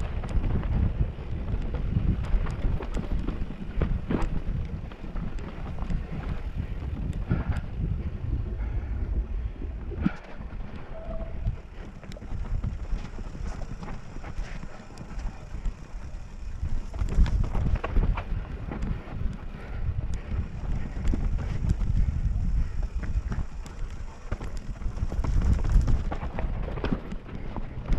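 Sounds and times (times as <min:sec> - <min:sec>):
bike clicks and rattles: 0:00.0 - 0:27.9
wind buffeting camera: 0:00.0 - 0:27.9
tyres on dirt and rock: 0:10.0 - 0:27.9.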